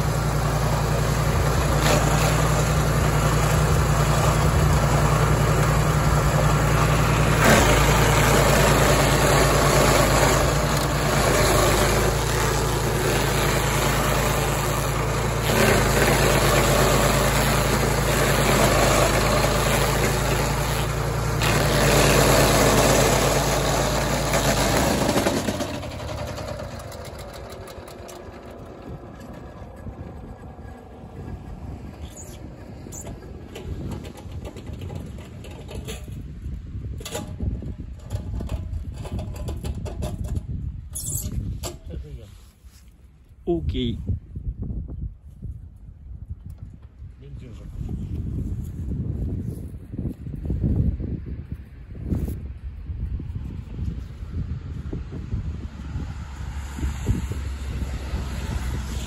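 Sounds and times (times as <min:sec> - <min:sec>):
petrol engine humming: 0:00.0 - 0:35.8
stump grinder chipping wood: 0:00.0 - 0:36.3.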